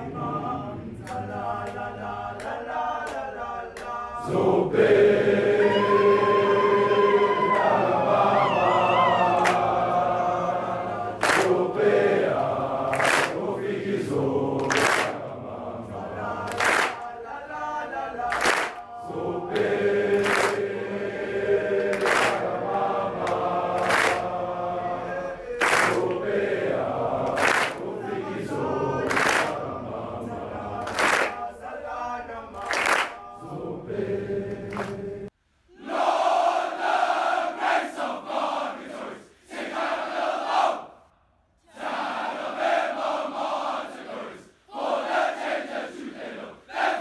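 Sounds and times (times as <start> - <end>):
boys singing and chanting in unison: 0.0 - 40.9, 41.6 - 47.0
unison clap: 1.0 - 4.0, 8.9 - 10.0, 11.2 - 15.3, 16.4 - 17.2, 18.2 - 18.9, 19.5 - 20.8, 21.8 - 24.4, 25.5 - 29.8, 30.8 - 31.5, 32.6 - 33.3, 34.5 - 35.1.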